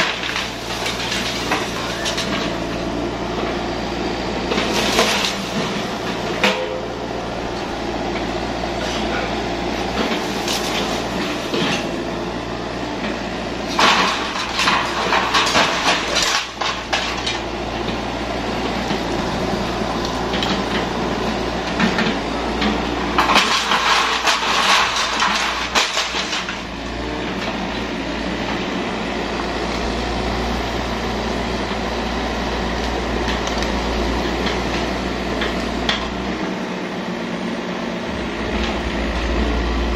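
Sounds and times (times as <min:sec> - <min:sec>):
diesel engine running: 0:00.0 - 0:39.9
metallic clanking of steel tracks: 0:04.6 - 0:12.0.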